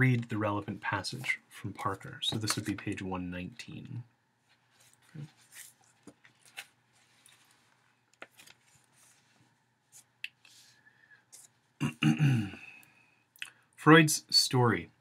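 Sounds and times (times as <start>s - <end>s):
book pages rustling: 1.2s - 2.8s, 4.4s - 11.6s.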